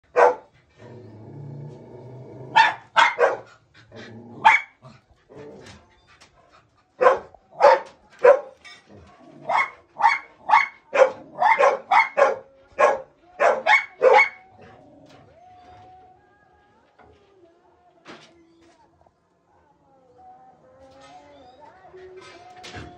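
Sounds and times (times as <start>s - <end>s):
dog barking: 0.1s - 0.5s, 2.5s - 3.5s, 4.4s - 4.8s, 7.0s - 8.6s, 9.4s - 14.5s
dog growling: 0.6s - 2.7s, 3.6s - 5.9s, 10.4s - 11.6s, 14.4s - 15.5s.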